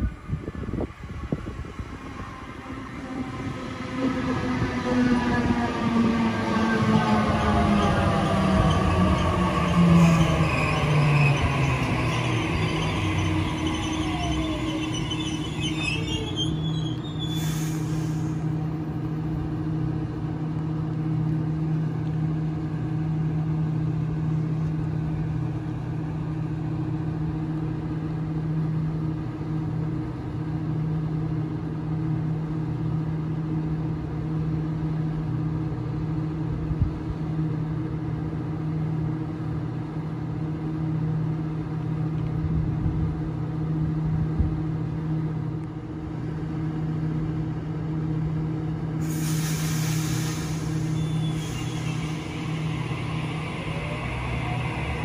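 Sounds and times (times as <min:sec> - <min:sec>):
electric train humming: 0:00.0 - 0:28.2, 0:42.5 - 0:55.0.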